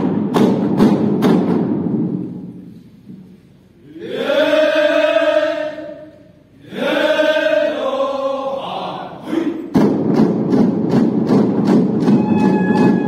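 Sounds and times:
rhythmic drum beating: 0:00.0 - 0:02.2, 0:09.6 - 0:13.0
group chanting in unison: 0:03.8 - 0:09.8.

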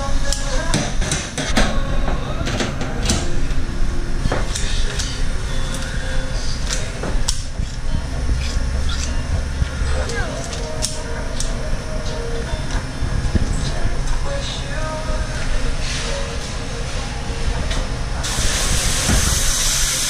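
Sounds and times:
steady low hum: 0:00.0 - 0:20.0
shears clicking on steel: 0:06.6 - 0:11.6.

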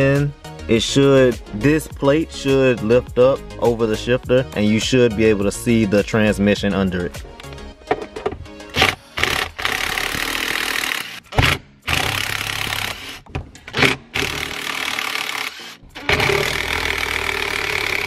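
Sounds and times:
impact driver loosening bolts: 0:08.0 - 0:18.0.

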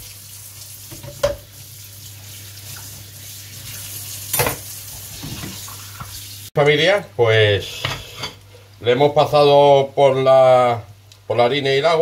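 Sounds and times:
oil sizzling in a frying pan: 0:00.0 - 0:06.5.

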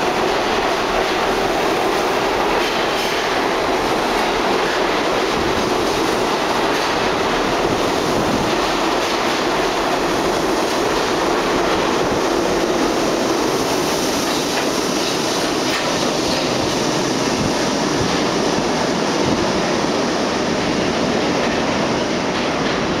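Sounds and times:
wheels clicking over rail joints: 0:00.0 - 0:12.9, 0:13.5 - 0:17.0
subway train wheels rushing on rail: 0:00.0 - 0:23.0.

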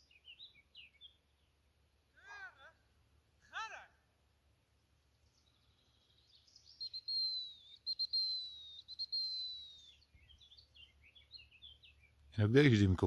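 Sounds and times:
small bird chirps: 0:00.0 - 0:01.6, 0:05.0 - 0:12.4
dog training whistle: 0:06.8 - 0:09.9.

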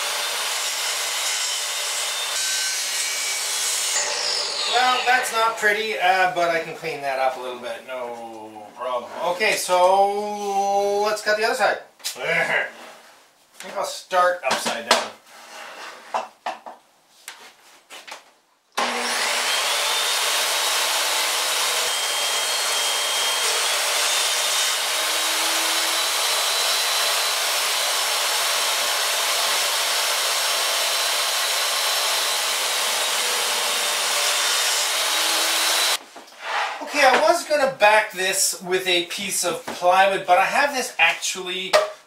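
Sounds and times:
table saw cutting wood: 0:00.0 - 0:05.9, 0:18.8 - 0:37.2.

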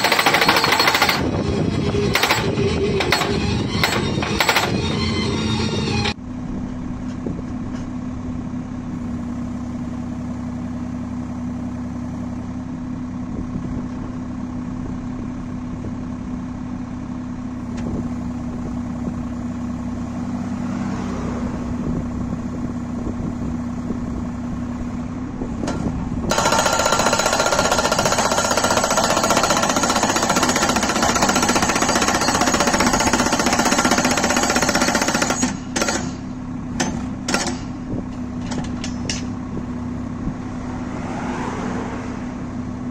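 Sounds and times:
hydraulic hammer pounding post: 0:00.0 - 0:05.0, 0:25.6 - 0:39.4
tractor engine running: 0:00.0 - 0:42.9.

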